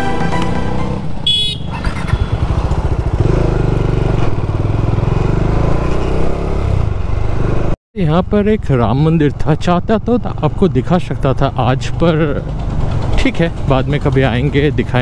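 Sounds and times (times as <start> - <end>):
motorcycle engine pulling away: 0.5 - 7.8, 9.0 - 14.9.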